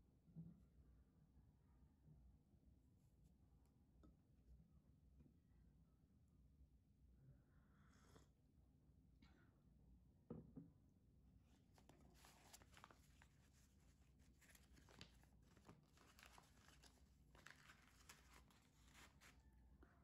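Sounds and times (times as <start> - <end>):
paper wrapping crinkling: 11.7 - 19.4.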